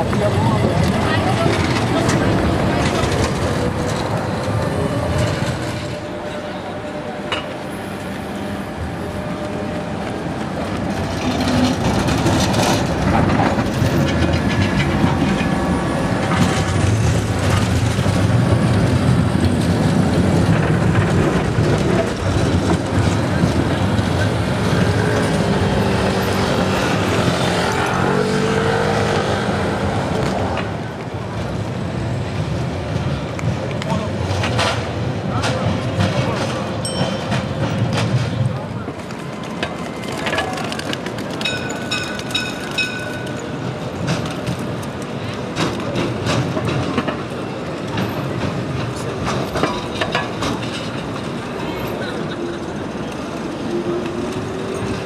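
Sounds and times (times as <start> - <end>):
wheels clacking: 0.0 - 6.0, 33.0 - 55.0
tram rumbling on rails: 0.0 - 55.0.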